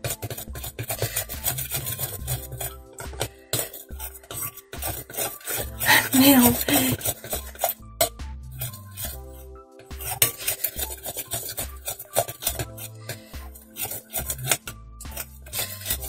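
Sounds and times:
spoon scraping glass bowl: 0.0s - 16.0s
person's voice: 5.8s - 7.1s.

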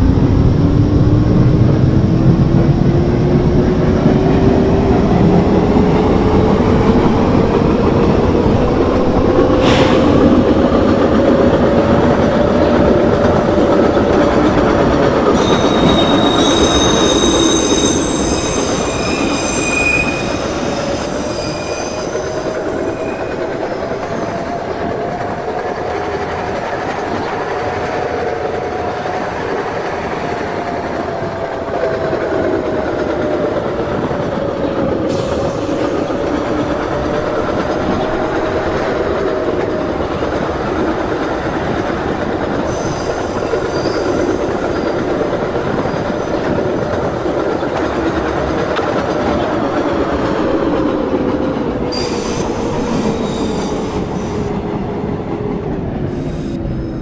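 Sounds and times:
subway train wheels rumbling: 0.0s - 57.0s
train whine: 0.0s - 57.0s
high-pitched wheel squeal: 15.4s - 24.7s, 42.7s - 45.1s.

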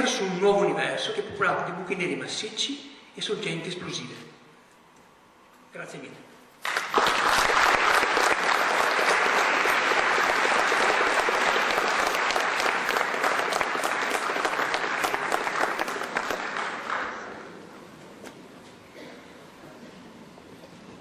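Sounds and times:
audience applauding: 6.6s - 17.5s.

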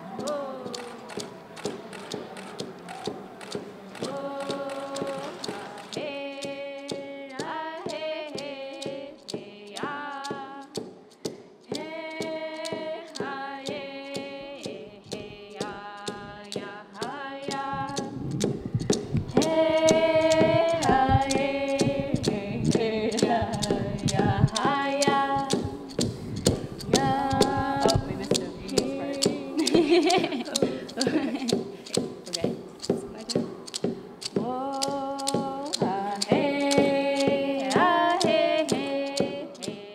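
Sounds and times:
voices singing gliding notes: 0.0s - 39.9s
steady sharp beat: 10.3s - 39.9s.

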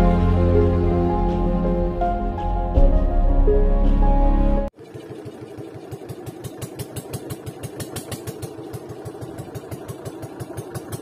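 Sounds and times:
boat engine running: 4.1s - 11.0s.

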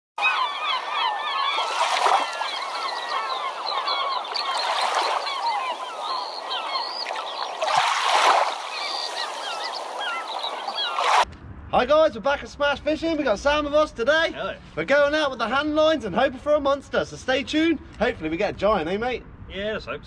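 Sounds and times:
flock of birds calling: 0.2s - 11.2s.

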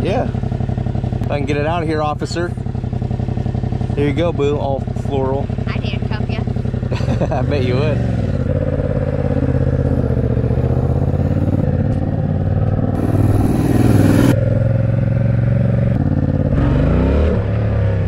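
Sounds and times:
motorcycle engine idling: 0.0s - 16.6s.

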